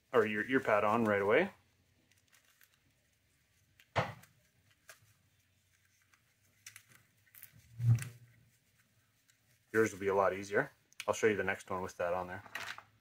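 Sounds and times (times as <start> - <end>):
thump: 4.0 - 4.2
plastic headphone parts clicking: 5.8 - 7.5.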